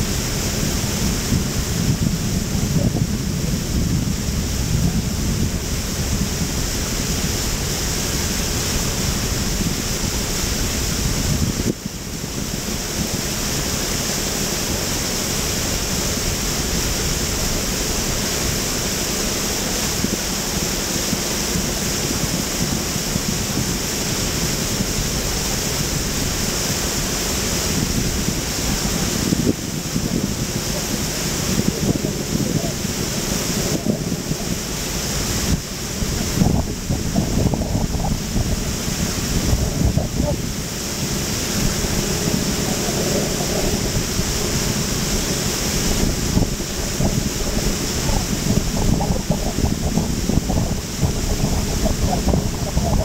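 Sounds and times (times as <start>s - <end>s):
wind rushing over microphone: 0.0s - 53.0s
low rumble: 27.3s - 53.0s.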